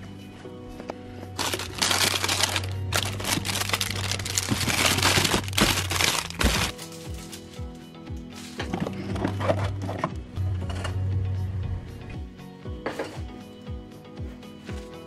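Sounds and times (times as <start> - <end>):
background music: 0.0 - 15.0
cellophane packs crinkling: 1.4 - 7.6.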